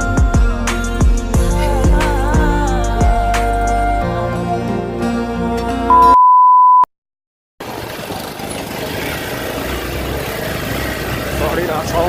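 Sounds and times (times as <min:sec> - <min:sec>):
background music: 0:00.0 - 0:06.2
electronic beep: 0:05.9 - 0:06.9.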